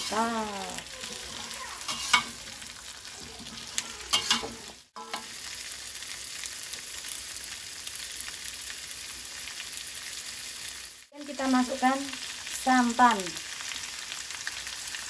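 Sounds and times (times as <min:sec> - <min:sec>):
metal spatula scraping wok: 0:00.0 - 0:00.5, 0:01.8 - 0:05.4
food sizzling in oil: 0:00.0 - 0:15.0.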